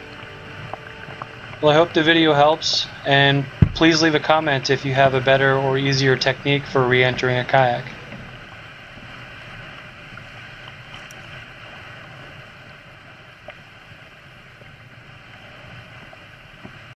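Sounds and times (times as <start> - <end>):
faint ticks: 0.0 - 1.6
water washing along kayak hull: 0.0 - 17.0.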